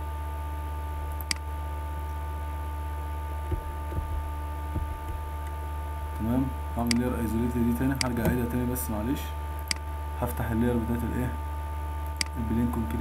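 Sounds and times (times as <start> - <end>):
electrical hum: 0.0 - 13.0
sharp click: 1.1 - 1.4, 12.0 - 12.4
soft low knocks: 3.3 - 5.6.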